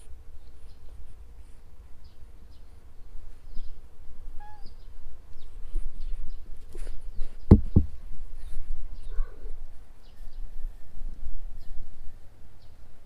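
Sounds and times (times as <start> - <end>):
cat call: 4.4 - 4.8
faint high chirps: 4.4 - 6.2.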